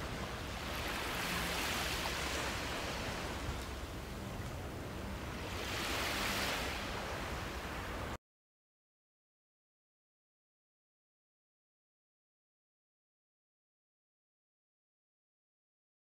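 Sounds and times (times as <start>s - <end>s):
waves washing onto sand: 0.0s - 8.2s.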